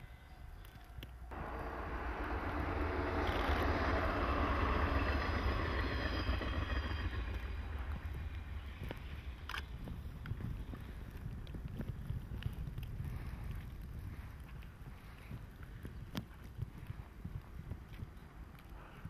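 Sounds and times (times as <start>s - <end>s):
wind rumble on microphone: 1.0s - 19.0s
train passing: 1.2s - 11.1s.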